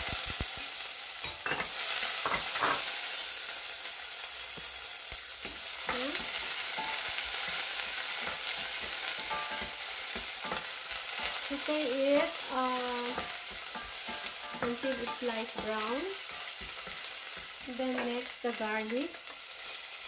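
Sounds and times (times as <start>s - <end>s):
onions sizzling in oil: 0.0s - 20.0s
wooden spoon scraping a pan: 5.4s - 18.4s.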